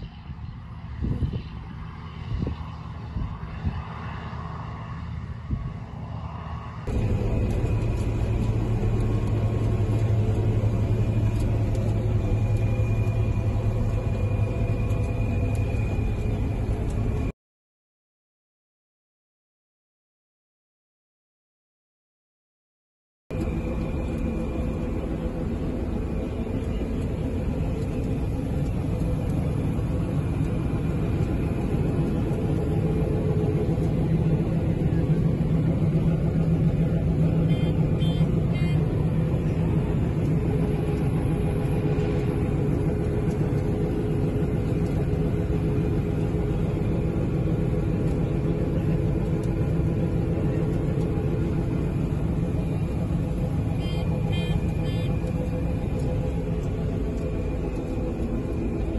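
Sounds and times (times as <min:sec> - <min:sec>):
combine harvester engine drone: 0:00.0 - 0:17.3, 0:23.3 - 0:58.9
faint beeps: 0:53.7 - 0:55.4.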